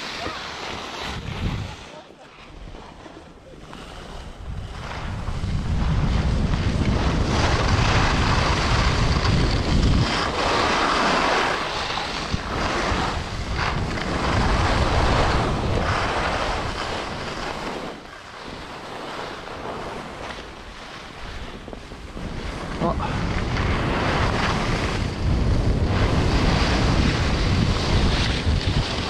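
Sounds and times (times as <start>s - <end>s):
skis scraping on snow: 0.0s - 29.0s
wind rushing over microphone: 1.0s - 1.9s, 3.8s - 29.0s.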